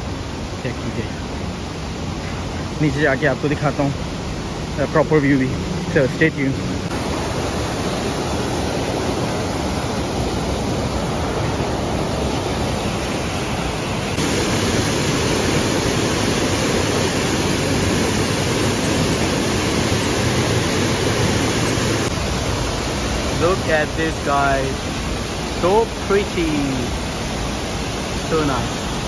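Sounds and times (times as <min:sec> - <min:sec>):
waterfall rushing over rock: 0:00.0 - 0:29.0.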